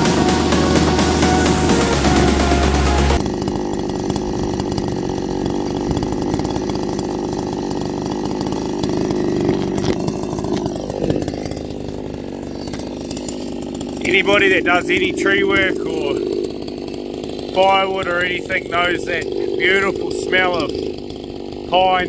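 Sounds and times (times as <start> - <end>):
background music: 0.0 - 3.2
chainsaw idling: 0.0 - 22.0.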